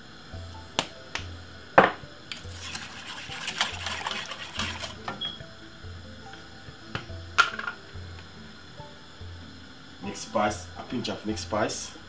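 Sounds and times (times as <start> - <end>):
whisk clinking against pot: 2.3 - 5.0.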